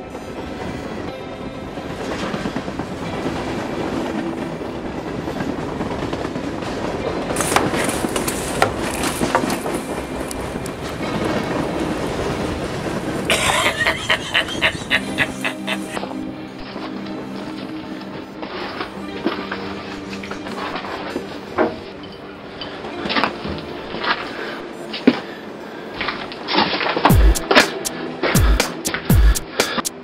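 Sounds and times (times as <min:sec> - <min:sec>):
train wheel clatter: 0:00.0 - 0:16.0
moving train rumble: 0:00.0 - 0:30.0.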